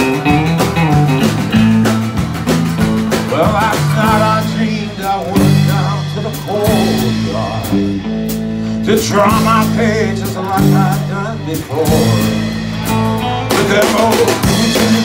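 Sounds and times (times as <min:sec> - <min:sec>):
bass notes: 0:00.0 - 0:15.0
drum and cymbal hits: 0:00.0 - 0:15.0
electric guitars: 0:00.0 - 0:15.0
man singing into a microphone: 0:03.3 - 0:08.0, 0:08.8 - 0:12.7, 0:13.4 - 0:15.0.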